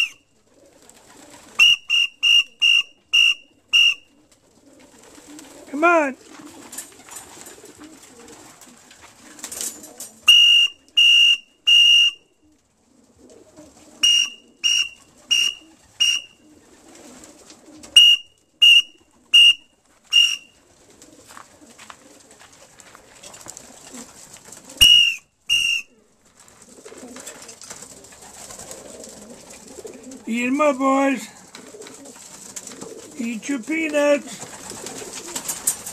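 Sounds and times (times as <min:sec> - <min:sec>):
pigeons cooing: 0:00.0 - 0:35.9
whistle blasts: 0:01.6 - 0:04.1, 0:10.3 - 0:12.2, 0:14.0 - 0:16.4, 0:18.0 - 0:20.6, 0:24.8 - 0:25.9.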